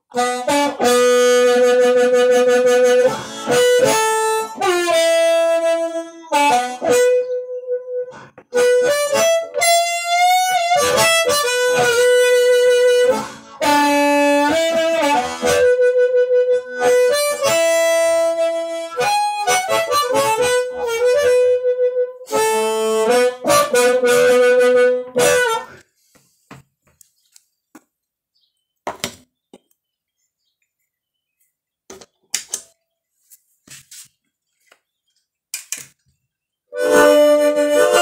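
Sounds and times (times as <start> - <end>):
distorted harmonica playing: 0.0 - 25.9, 36.7 - 38.0.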